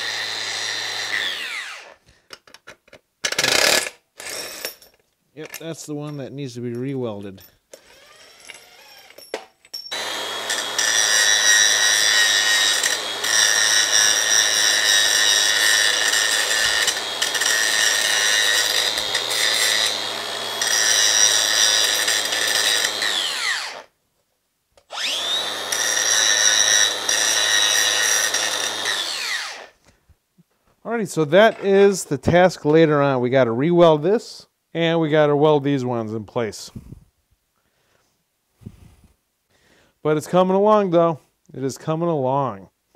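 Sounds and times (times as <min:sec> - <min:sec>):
angle grinder grinding metal: 0:00.0 - 0:02.0, 0:07.8 - 0:09.2, 0:09.9 - 0:23.9, 0:24.9 - 0:29.8.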